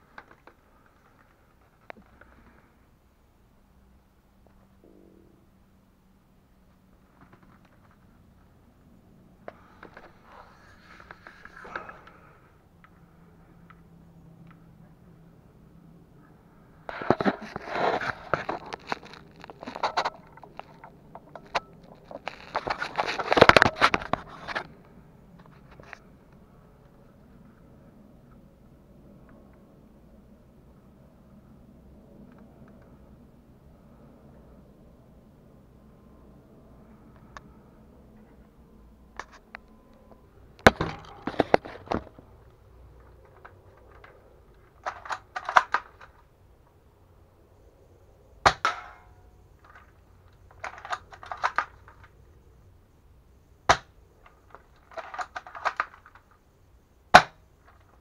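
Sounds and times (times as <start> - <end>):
rifle handling clicks and scrapes: 9.5 - 12.4, 16.9 - 24.8, 43.0 - 46.2, 49.6 - 52.1, 54.2 - 56.4.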